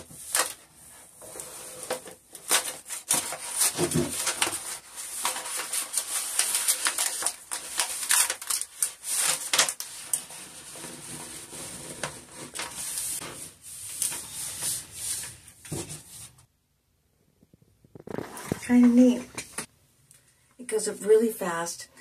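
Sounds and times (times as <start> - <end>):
paper backing crinkling: 0.0 - 16.5
hands rubbing wallpaper: 9.0 - 16.5.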